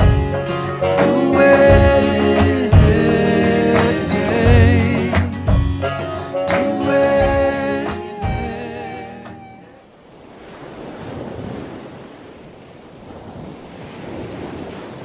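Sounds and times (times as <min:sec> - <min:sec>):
song chords and held note: 0:00.0 - 0:09.8
ocean surf: 0:00.0 - 0:15.0.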